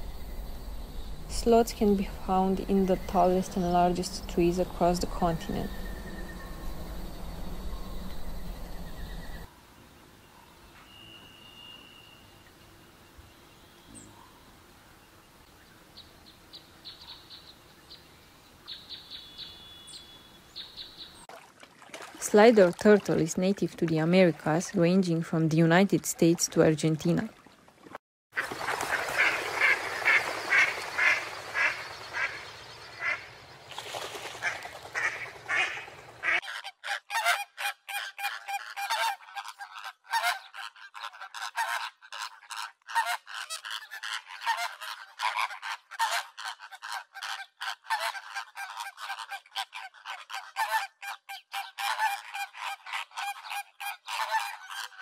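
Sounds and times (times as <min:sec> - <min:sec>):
flamingos honking: 0:34.4 - 0:55.0.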